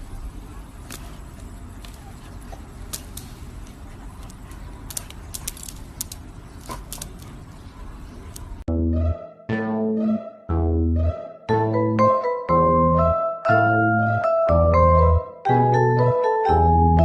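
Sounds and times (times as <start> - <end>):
fidget spinner clicks on tile floor: 2.8 - 7.3.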